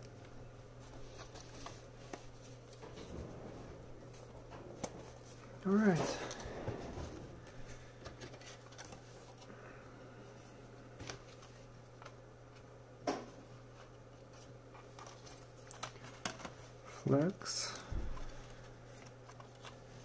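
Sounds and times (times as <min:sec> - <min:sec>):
low hum: 0:00.0 - 0:12.8.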